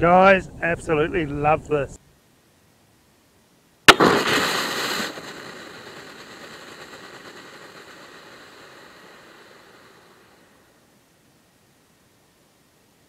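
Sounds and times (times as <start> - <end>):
bullet striking with sharp crack: 3.9 - 8.6
fire extinguisher bursting hiss: 3.9 - 10.4.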